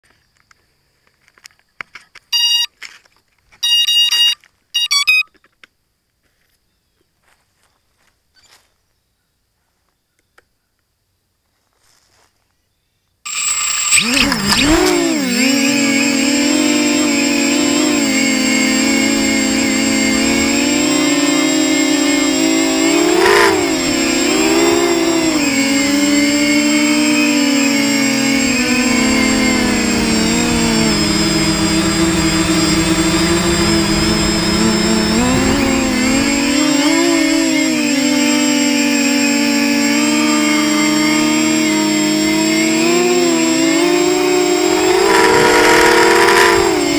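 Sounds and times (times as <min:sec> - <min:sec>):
quadcopter motors buzzing whine: 0:02.4 - 0:02.7, 0:13.3 - 0:46.9.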